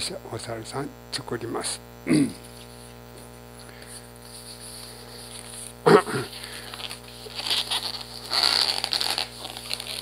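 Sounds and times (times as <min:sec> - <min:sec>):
balloon squeaking: 0:06.2 - 0:10.0
latex rubbing squeaks: 0:07.2 - 0:10.0.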